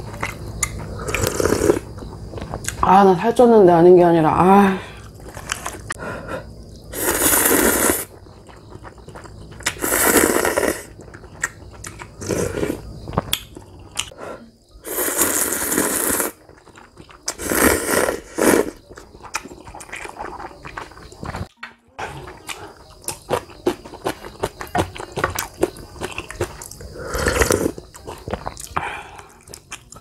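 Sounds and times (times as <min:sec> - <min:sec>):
noodles being slurped: 0:07.0 - 0:08.1
chewing: 0:08.1 - 0:14.2, 0:15.2 - 0:21.5, 0:22.1 - 0:30.0.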